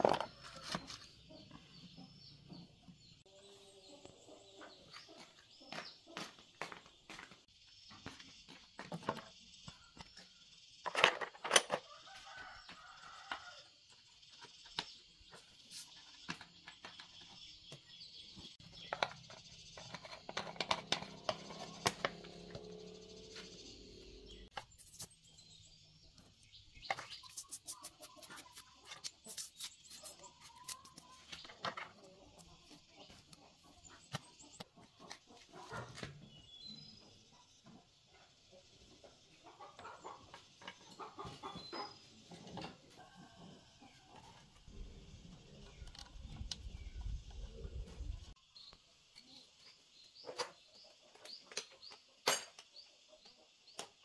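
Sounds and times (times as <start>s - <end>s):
chickens clucking: 0.0s - 7.4s, 26.8s - 48.4s
metal parts and tools clinking: 10.8s - 11.9s, 52.2s - 52.7s
brush scrubbing metal part: 24.7s - 25.2s, 27.0s - 31.1s.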